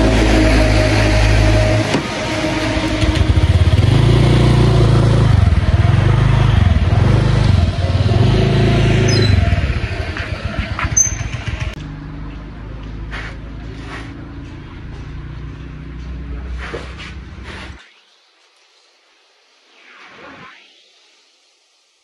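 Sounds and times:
motor scooter engine riding off: 0:00.0 - 0:12.2.

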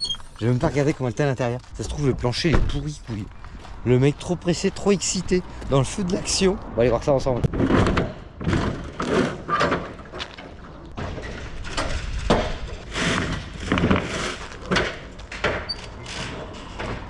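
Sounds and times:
thumps and knocks on trailer: 0:07.5 - 0:17.0.

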